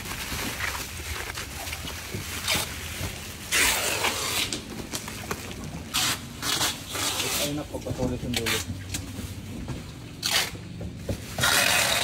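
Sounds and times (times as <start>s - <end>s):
plastic wrapping crinkling: 0.0s - 9.5s.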